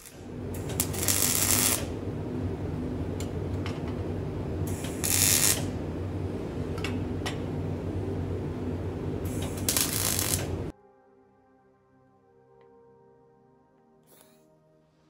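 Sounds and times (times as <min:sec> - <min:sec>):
arc welding hiss: 0:00.0 - 0:02.0, 0:04.6 - 0:05.8, 0:09.2 - 0:10.7
steady workshop hum: 0:00.0 - 0:10.7.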